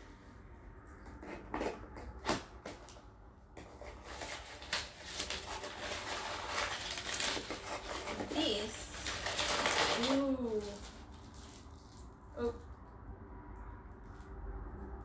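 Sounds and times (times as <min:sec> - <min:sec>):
paper packing rustling: 0:03.6 - 0:12.0
tape and cardboard ripping: 0:03.6 - 0:12.1.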